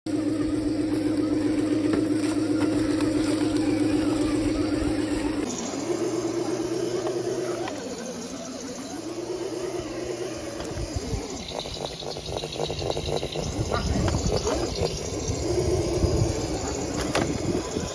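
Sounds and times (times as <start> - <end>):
electric motor and gears whining: 0.1 - 17.9.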